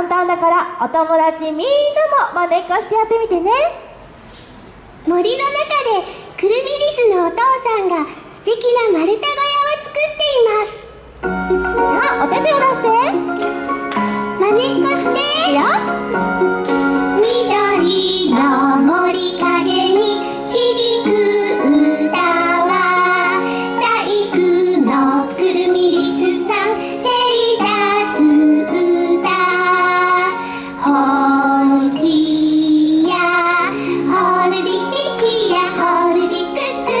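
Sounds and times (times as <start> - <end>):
instrumental backing track: 11.1 - 37.0
high voice singing: 17.2 - 34.5.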